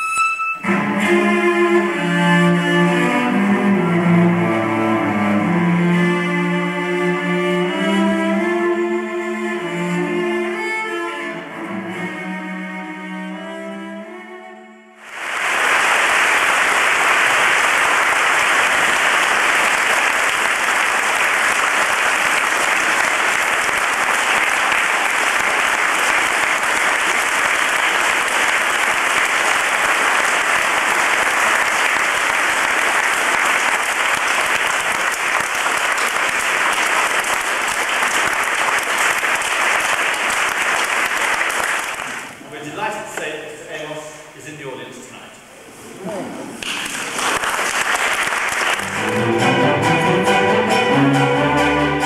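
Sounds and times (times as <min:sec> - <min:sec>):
string music: 0:00.0 - 0:41.8, 0:48.7 - 0:52.0
audience applauding: 0:15.0 - 0:42.4, 0:46.6 - 0:49.4.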